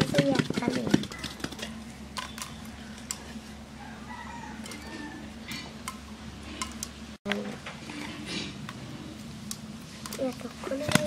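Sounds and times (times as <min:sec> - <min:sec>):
steady low hum: 0:00.0 - 0:11.0
distant chicken calling: 0:02.2 - 0:06.6.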